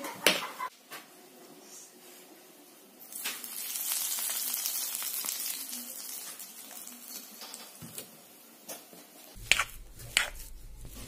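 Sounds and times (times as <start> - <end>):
hot oil sizzling: 3.0 - 8.3.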